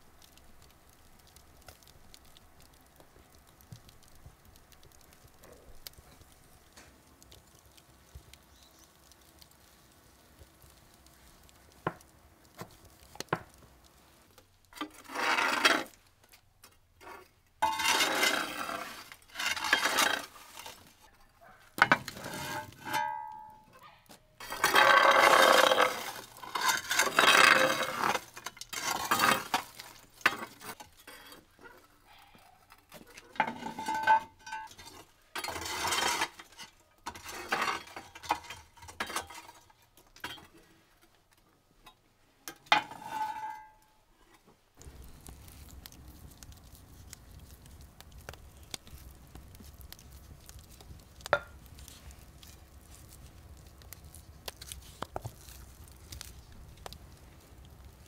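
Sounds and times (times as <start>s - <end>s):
utensil scraping a bowl: 14.8s - 16.0s, 17.0s - 20.9s, 24.4s - 31.4s.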